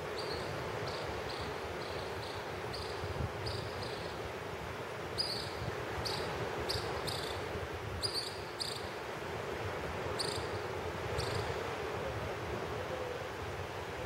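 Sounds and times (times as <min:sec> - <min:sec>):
wind on microphone: 0:00.0 - 0:08.6
waves breaking on a beach: 0:00.0 - 0:14.0.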